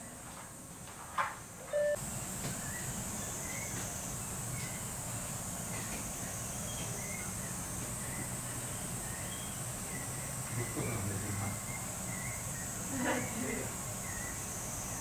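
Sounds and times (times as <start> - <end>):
brief tone: 1.7 - 2.0.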